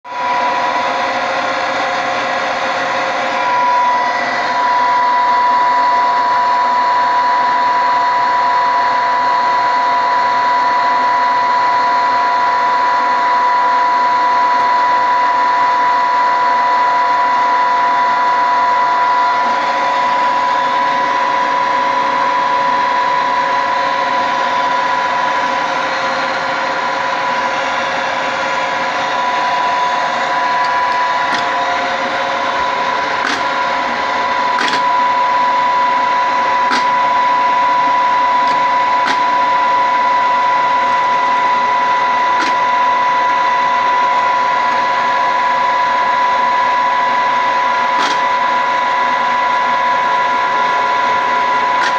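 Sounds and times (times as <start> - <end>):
milling machine whine: 0.0 - 51.9.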